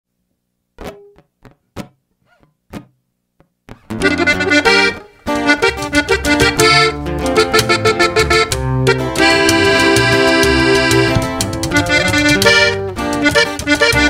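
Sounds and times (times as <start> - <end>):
accordion melody: 3.7 - 14.0
band playing: 3.8 - 14.0.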